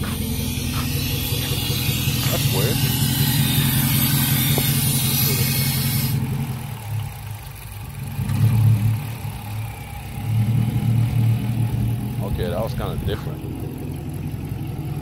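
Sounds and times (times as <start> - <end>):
car engine idling: 0.0 - 15.0.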